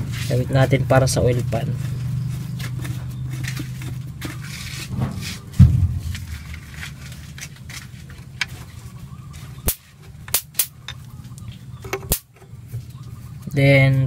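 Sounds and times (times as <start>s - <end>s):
low hum: 5.0s - 8.2s.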